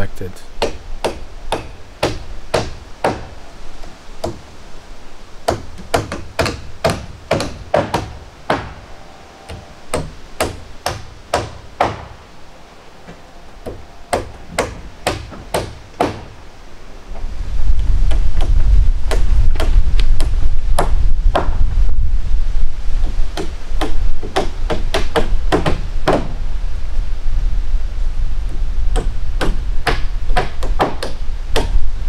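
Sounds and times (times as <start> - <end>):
hammer blows on wood: 5.5 - 12.2, 13.0 - 16.4.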